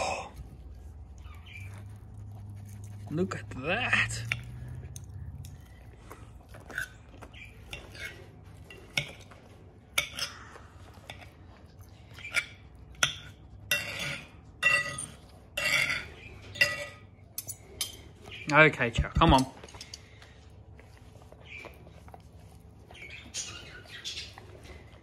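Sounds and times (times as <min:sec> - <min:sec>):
cutlery scraping and clinking on plate: 0:06.6 - 0:11.3, 0:12.1 - 0:18.4, 0:19.3 - 0:20.1.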